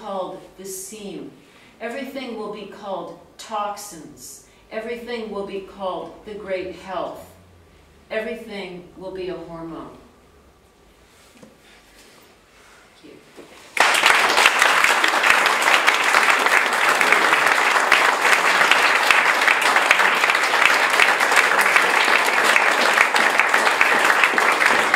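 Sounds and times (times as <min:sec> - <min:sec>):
audience applauding: 0:13.7 - 0:24.9.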